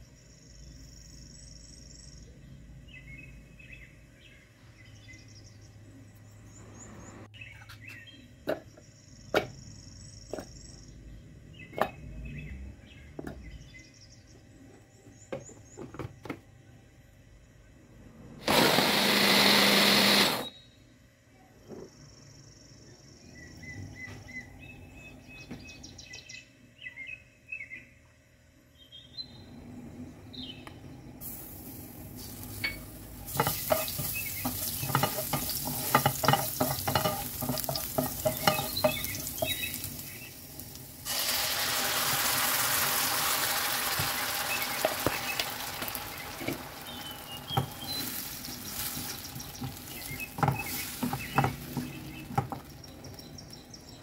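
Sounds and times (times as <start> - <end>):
garlic sizzling in hot oil: 31.2 - 52.9
wooden spoon scraping pan: 32.6 - 39.8, 46.4 - 52.6.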